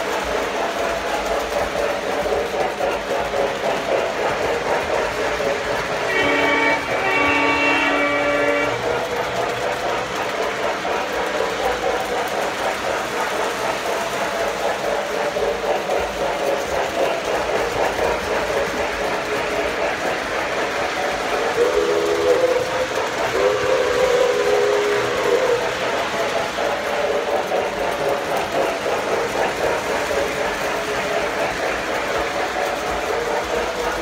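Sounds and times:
model train wheels rattling on rails: 0.0 - 34.0
train horn blasts: 6.1 - 8.8.

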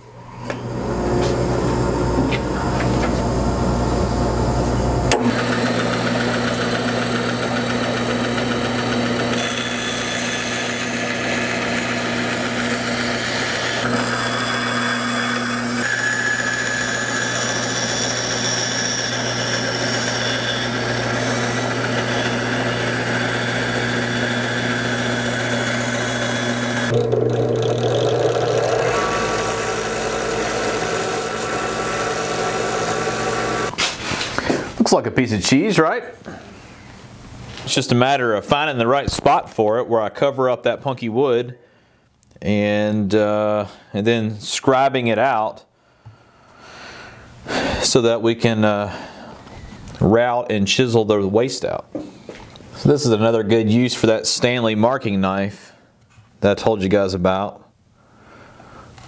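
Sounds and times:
bandsaw cutting wood: 5.1 - 33.8.

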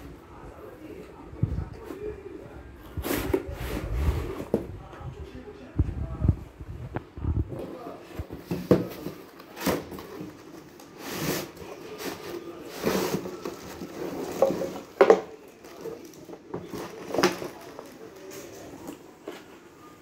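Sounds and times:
cardboard rustling and scraping: 1.7 - 5.0, 7.4 - 19.0.

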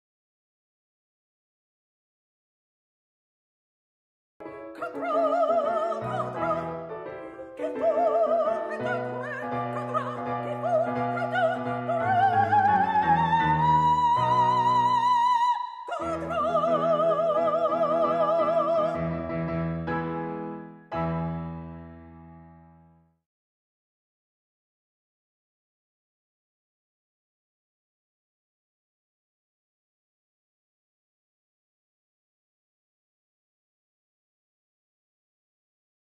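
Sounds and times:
piano accompaniment: 4.4 - 23.1
soprano singing opera: 4.7 - 19.1.

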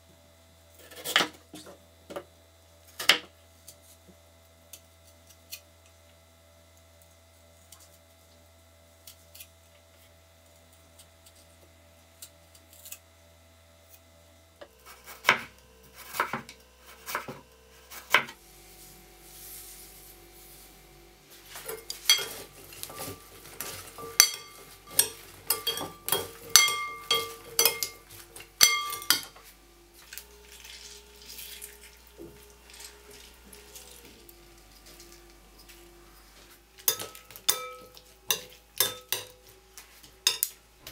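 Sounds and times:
metal spoon clinking on glass bowl: 22.0 - 23.2, 24.0 - 29.3, 36.9 - 39.4, 40.3 - 40.5.

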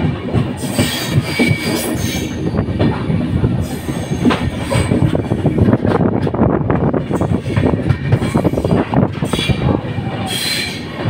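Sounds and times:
train wheels rumbling on rails: 0.0 - 11.0
high wheel squeal: 10.2 - 10.9.

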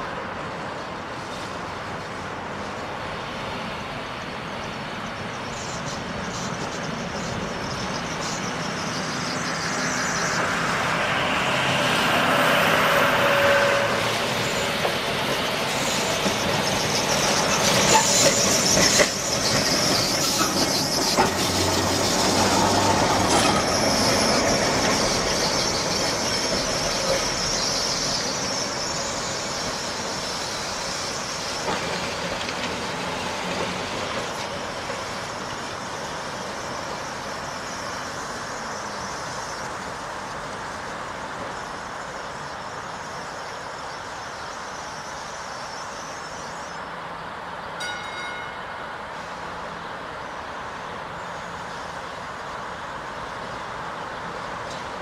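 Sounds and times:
streetcar rolling past: 0.0 - 55.0
faint high wheel squeal: 5.1 - 33.5
wheels clicking over rail joints: 14.5 - 27.8, 31.4 - 37.5.

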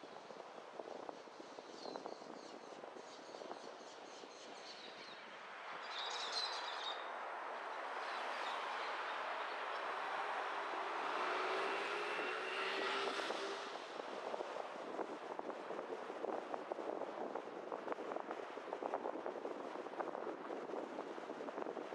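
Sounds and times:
vehicle passing by: 7.3 - 15.1.

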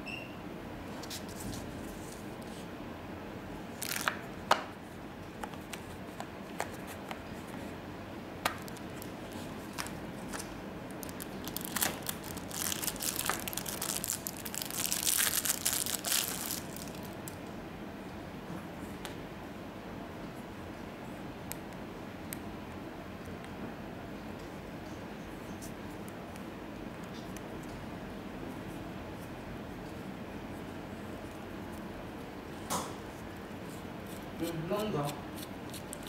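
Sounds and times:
crinkling plastic: 3.8 - 4.3, 8.5 - 17.4.

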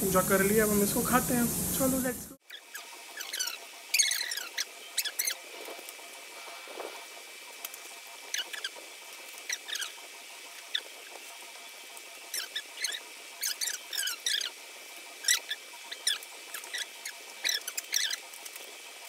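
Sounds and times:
high squeaky chirps: 2.4 - 5.5, 12.3 - 14.6, 15.2 - 18.2.

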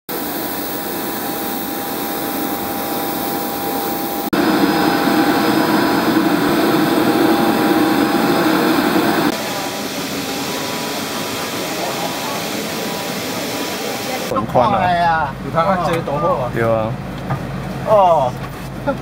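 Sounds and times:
turboprop engine whine: 0.1 - 14.6.

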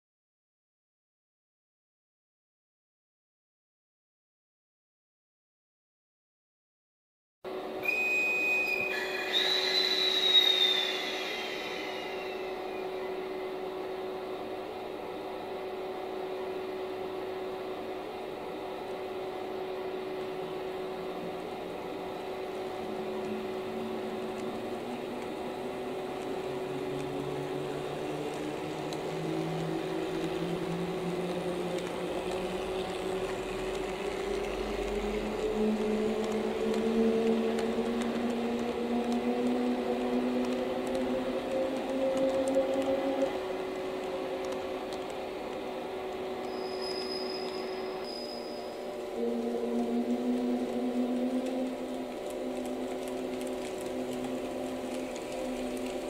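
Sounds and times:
electric locomotive hum: 7.5 - 56.0
traction motor tones rising: 17.8 - 56.0.

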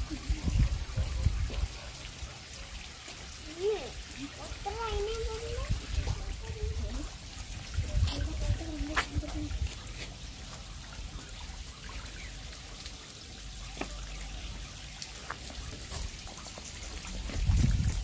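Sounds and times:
low rumble on microphone: 0.0 - 1.8, 5.2 - 9.9, 17.0 - 18.0
stream trickling over rock: 0.0 - 18.0
water drips: 0.0 - 18.0.

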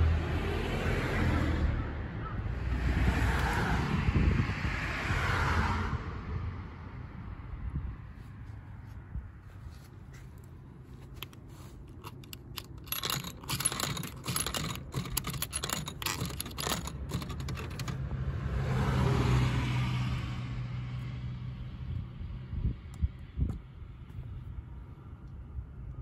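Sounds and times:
coins clicking through coin slot: 12.0 - 18.0.

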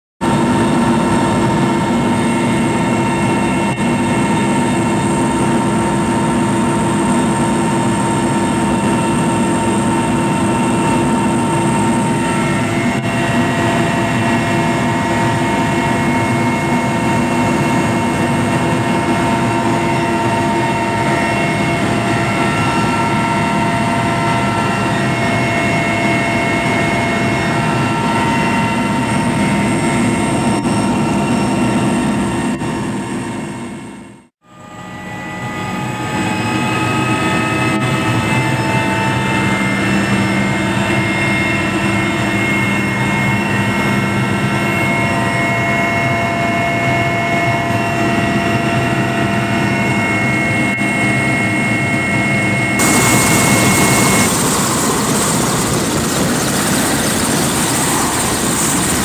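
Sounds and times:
helicopter engine drone: 0.2 - 59.0
engine whining tones: 34.4 - 59.0.

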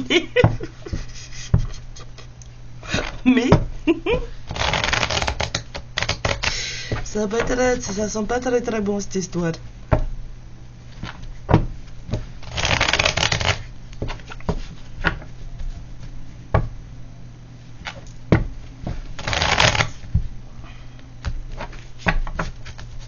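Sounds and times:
cards riffling: 4.5 - 6.6, 12.4 - 14.5, 19.1 - 20.0.

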